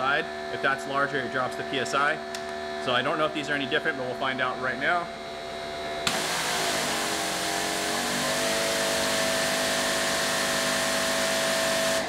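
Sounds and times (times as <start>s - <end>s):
motor and pump humming: 0.0s - 12.0s
pressure washer water jetting: 6.1s - 12.0s.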